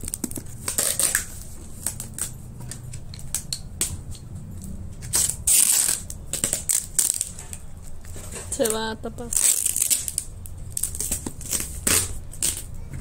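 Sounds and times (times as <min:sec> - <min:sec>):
plastic crinkling: 0:00.0 - 0:03.4, 0:05.0 - 0:12.8
tape ripping from cardboard: 0:00.0 - 0:03.9, 0:05.0 - 0:08.4, 0:09.3 - 0:12.8.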